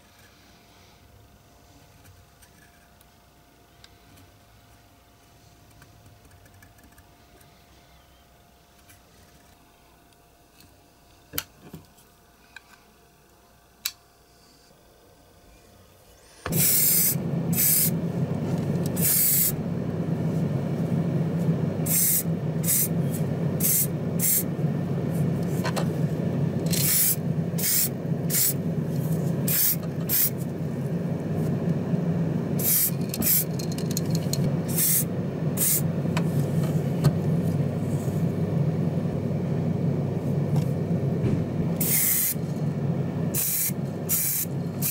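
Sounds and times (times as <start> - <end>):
sandblasting cabinet hum: 16.3 - 44.9
bursts of hissing air: 16.5 - 30.6, 32.5 - 38.3, 41.3 - 42.7, 43.3 - 44.9.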